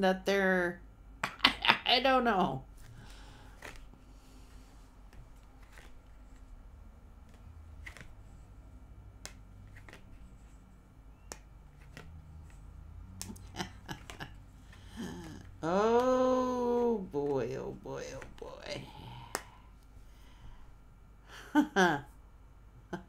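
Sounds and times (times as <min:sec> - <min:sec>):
low steady hum: 0:00.0 - 0:23.0
cards clicking and flicking: 0:02.8 - 0:04.0, 0:05.1 - 0:06.6, 0:07.2 - 0:08.4, 0:09.0 - 0:16.2.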